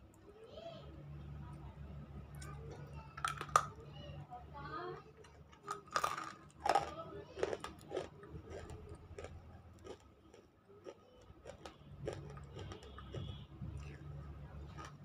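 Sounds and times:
crunchy chewing: 5.0s - 15.0s.

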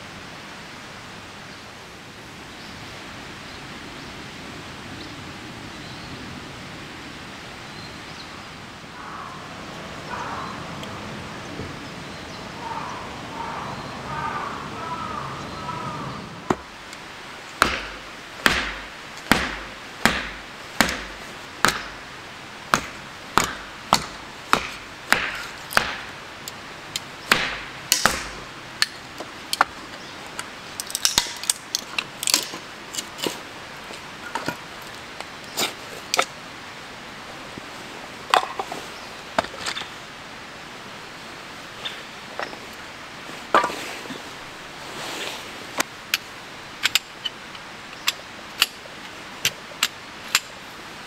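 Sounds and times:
sharp chopping strikes: 17.6s - 22.0s, 22.7s - 26.2s, 27.3s - 28.5s.

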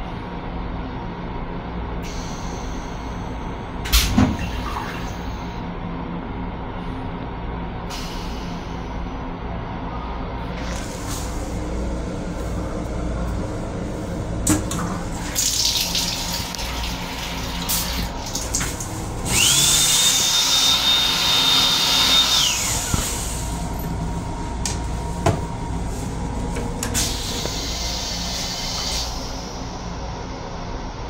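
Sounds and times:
moving train rumble: 0.0s - 21.5s, 22.3s - 31.0s
faucet water rushing: 15.1s - 22.9s.

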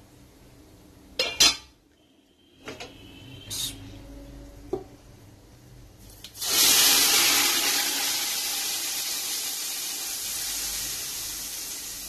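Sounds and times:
hot oil sizzling: 6.0s - 12.0s.

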